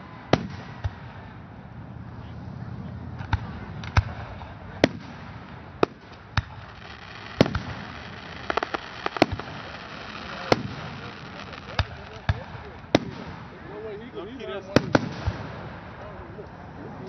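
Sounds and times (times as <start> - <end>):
crackling firework pops: 3.2 - 13.6, 14.7 - 15.7
firework shells bursting: 4.8 - 13.6.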